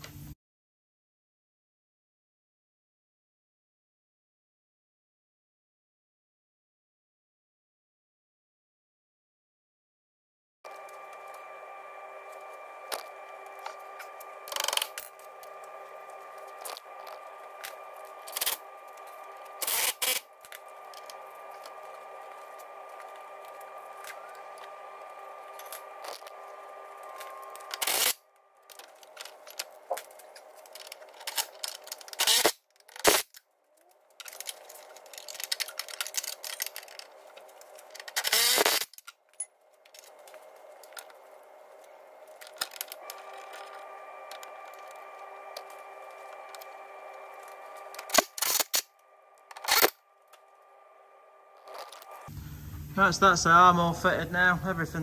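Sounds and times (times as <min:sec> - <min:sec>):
steady tonal hum: 0:10.7 - 0:33.2, 0:33.8 - 0:55.0
impact driver bursts: 0:32.1 - 0:33.3, 0:38.2 - 0:38.9.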